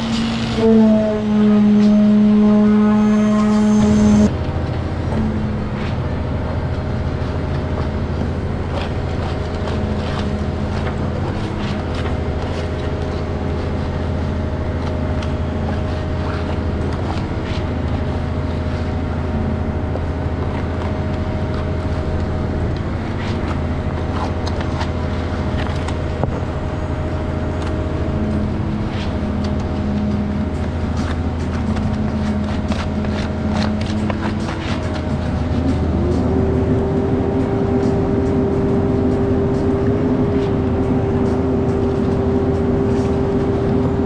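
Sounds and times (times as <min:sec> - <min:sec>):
heavy engine running: 0:00.0 - 0:44.0.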